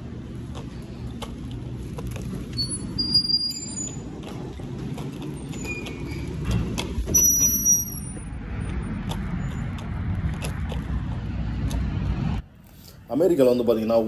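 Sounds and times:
low rumble of road traffic: 0:00.0 - 0:14.0
short high squeak: 0:02.5 - 0:04.1, 0:05.6 - 0:06.4, 0:07.1 - 0:08.3.

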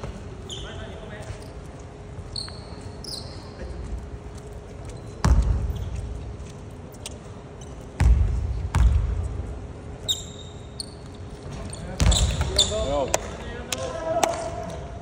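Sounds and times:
sneaker squeaks: 0:00.0 - 0:04.0, 0:04.6 - 0:06.3, 0:10.0 - 0:13.1
basketball bouncing on wooden floor: 0:05.2 - 0:06.0, 0:08.0 - 0:09.3.

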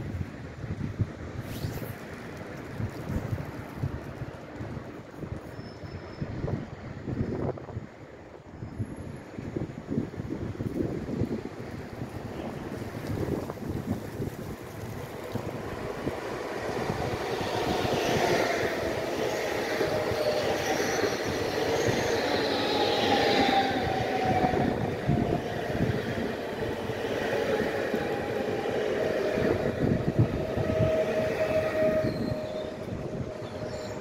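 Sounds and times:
thin steady train whine: 0:04.4 - 0:34.0
train wheels rumbling over rails: 0:10.0 - 0:34.0.

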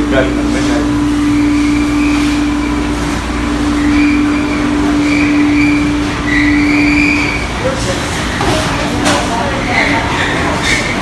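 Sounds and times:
machinery hum: 0:00.0 - 0:11.0
high squeals: 0:01.0 - 0:08.0.

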